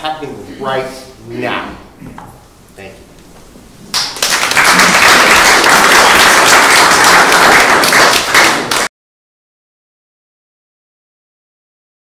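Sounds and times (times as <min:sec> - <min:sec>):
audience applauding: 0:03.9 - 0:08.9.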